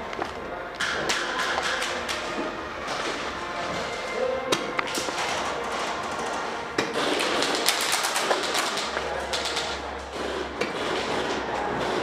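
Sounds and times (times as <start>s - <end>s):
steady background din: 0.0s - 12.0s
airsoft gunfire: 6.9s - 9.8s.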